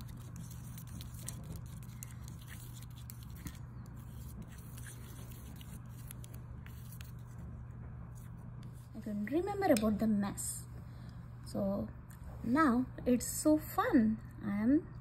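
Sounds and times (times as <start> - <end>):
brush stirring paint in glass bowl: 0.0 - 7.5
steady low hum: 0.0 - 15.0.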